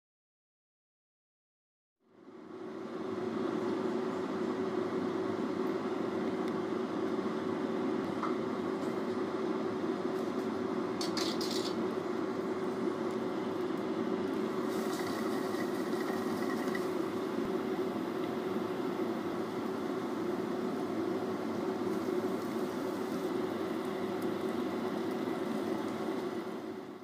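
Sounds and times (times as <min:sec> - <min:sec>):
sizzling: 0:11.1 - 0:27.0.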